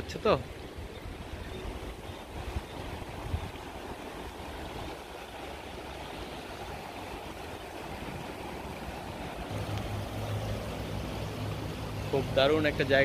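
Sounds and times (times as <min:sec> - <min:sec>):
river rushing: 0:00.0 - 0:13.0.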